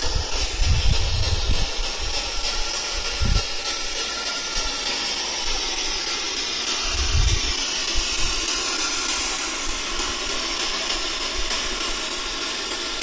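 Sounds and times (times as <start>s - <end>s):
low thumps: 0.0s - 3.7s
steady hiss: 0.0s - 13.0s.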